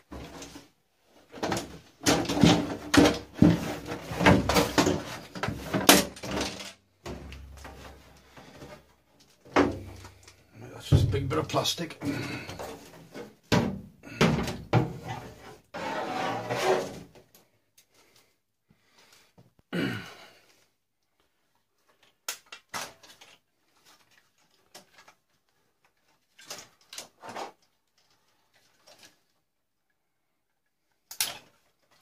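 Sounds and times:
plastic and metal parts clattering: 0:00.0 - 0:15.4, 0:21.8 - 0:29.3.

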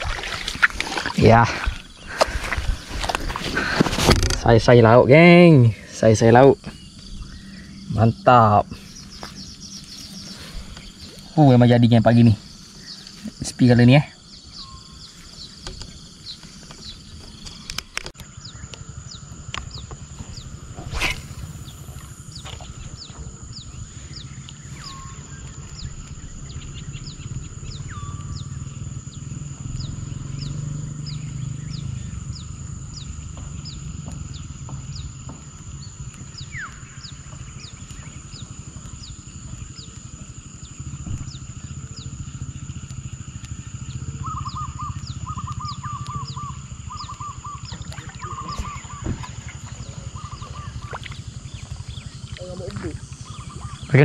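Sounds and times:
low rumble: 0:00.0 - 0:13.6, 0:14.2 - 0:53.9
high-pitched insect drone: 0:00.0 - 0:54.0
low bird-like calls: 0:16.4 - 0:40.0, 0:43.5 - 0:54.0.

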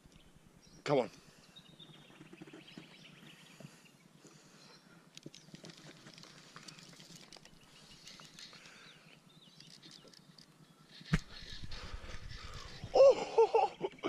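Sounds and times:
fishing rod ticks and rustles: 0:05.0 - 0:12.9.

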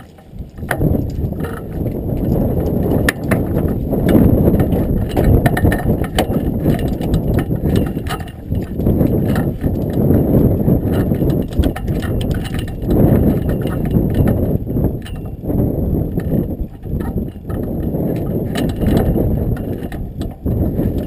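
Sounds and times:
water slapping a boat hull: 0:00.0 - 0:21.0
wind buffeting the microphone: 0:00.0 - 0:21.0.

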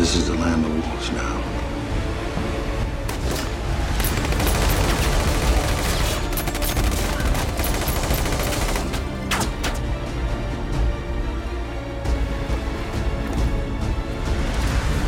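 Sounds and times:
automatic rifle fire: 0:03.1 - 0:09.8.

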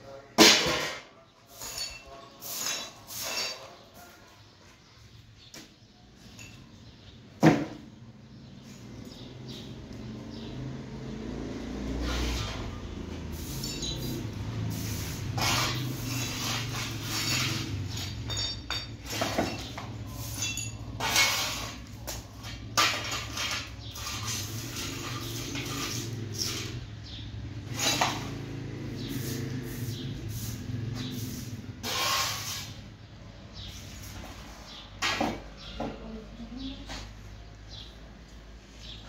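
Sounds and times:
dishes clattering and scraping: 0:00.4 - 0:03.9, 0:12.1 - 0:28.4, 0:34.0 - 0:36.0
ringing clinks of dishes: 0:01.6 - 0:03.6, 0:06.3 - 0:06.8, 0:13.6 - 0:14.4, 0:17.2 - 0:21.2.

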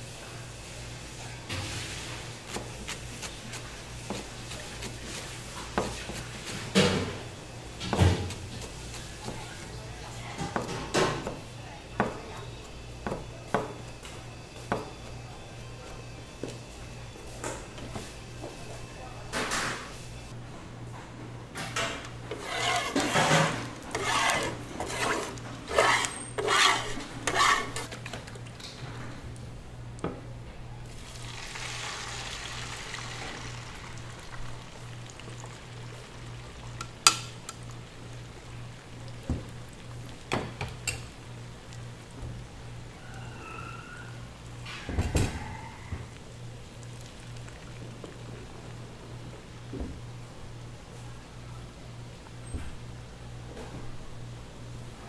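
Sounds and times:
plastic spatula scraping griddle: 0:22.3 - 0:28.0.

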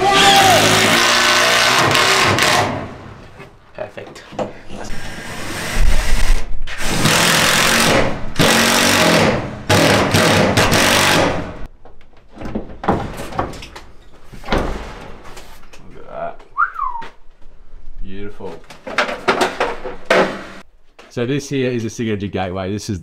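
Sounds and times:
power drill running: 0:00.4 - 0:02.8, 0:06.8 - 0:11.4.

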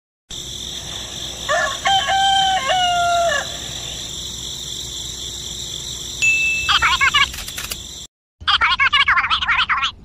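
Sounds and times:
rooster crowing: 0:00.6 - 0:04.2.

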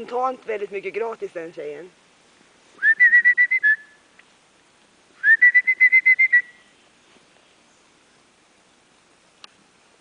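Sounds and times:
person whistling short high notes: 0:02.8 - 0:04.0, 0:05.2 - 0:06.6.

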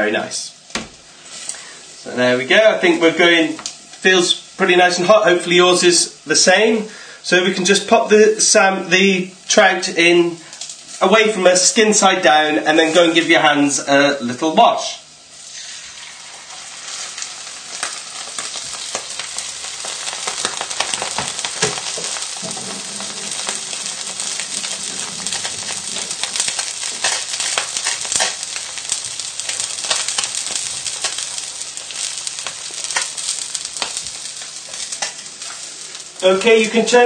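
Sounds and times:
fish frying in oil: 0:15.1 - 0:37.0.

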